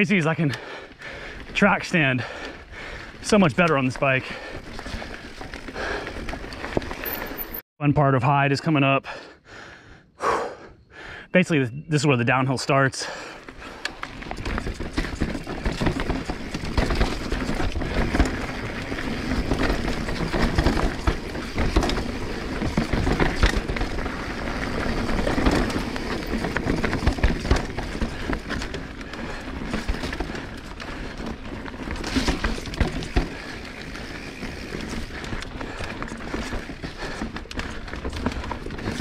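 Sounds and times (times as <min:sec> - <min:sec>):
bike tyres rolling over dirt: 0:00.0 - 0:07.6, 0:13.0 - 0:39.0
bike rattling and knocking: 0:00.6 - 0:07.6, 0:13.0 - 0:39.0.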